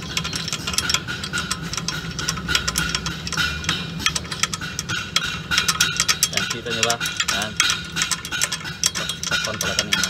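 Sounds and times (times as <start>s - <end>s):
metallic clicks of brake adjuster: 0.0s - 10.0s
steady hum: 0.0s - 10.0s.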